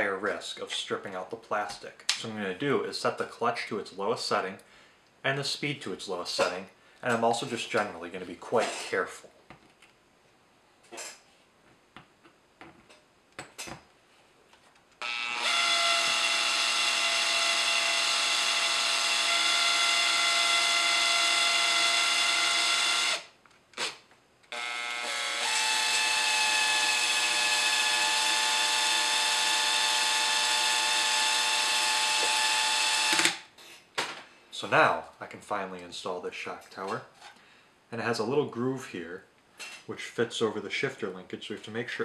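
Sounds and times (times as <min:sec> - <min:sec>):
cordless drill motor whine: 0:15.0 - 0:23.9, 0:24.5 - 0:33.3.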